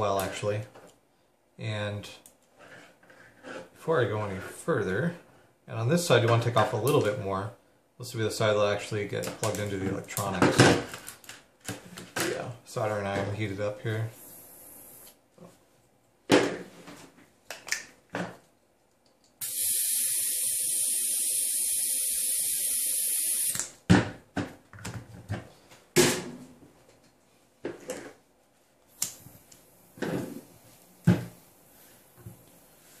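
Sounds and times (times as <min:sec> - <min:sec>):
gas hissing: 0:14.1 - 0:15.2, 0:19.4 - 0:23.7.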